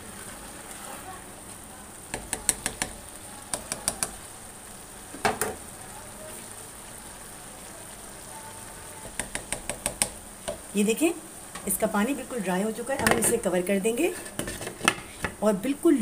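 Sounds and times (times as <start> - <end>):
sizzling hiss: 0.0 - 16.0
spatula scraping a metal pot: 14.1 - 15.3.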